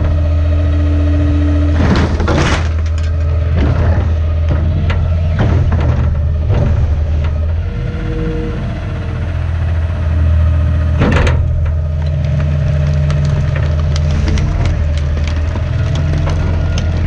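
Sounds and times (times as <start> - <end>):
garbage truck engine running: 0.0 - 17.0
loud sharp crack of crushing: 1.8 - 7.4, 11.0 - 17.0.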